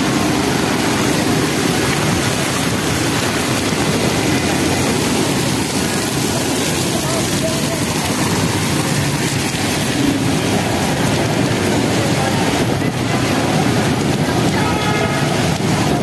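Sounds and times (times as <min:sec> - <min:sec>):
heavy rain hiss: 0:00.0 - 0:16.0
tyres on wet road: 0:00.0 - 0:16.0
vehicle engines: 0:00.0 - 0:16.0.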